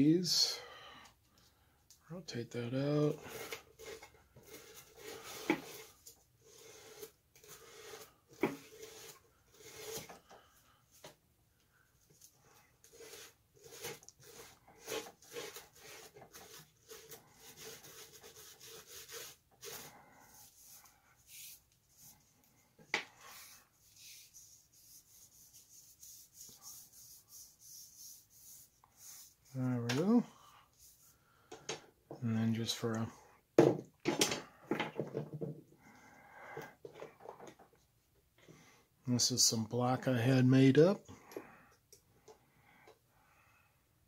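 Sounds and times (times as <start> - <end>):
wire brush scraping wood: 3.0 - 10.2, 12.8 - 22.2.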